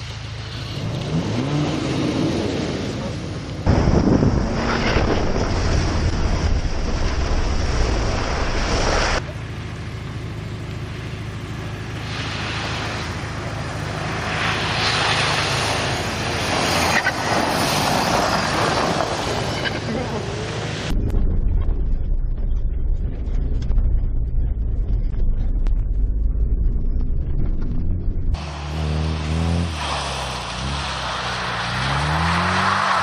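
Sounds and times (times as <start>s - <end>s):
tyres churning snow: 0.0s - 20.9s, 28.4s - 33.0s
car engine revving: 10.2s - 33.0s.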